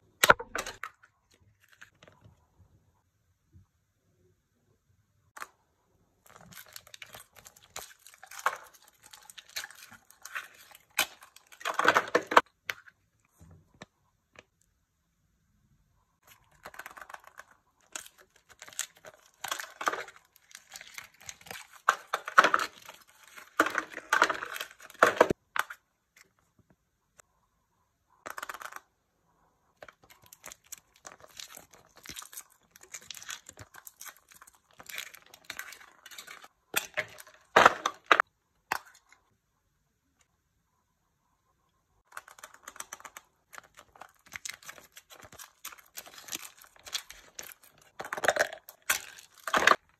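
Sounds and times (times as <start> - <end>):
foil wrapper crinkling: 16.3 - 25.4, 29.8 - 38.2, 42.0 - 49.9.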